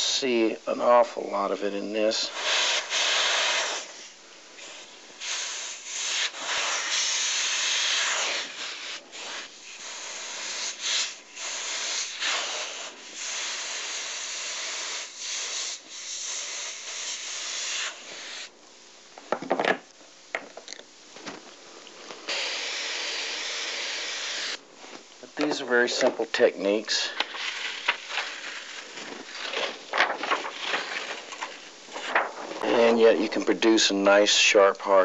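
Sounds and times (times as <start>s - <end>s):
airbrush hissing: 2.2s - 18.5s, 22.2s - 24.6s
handling sounds: 27.1s - 33.8s.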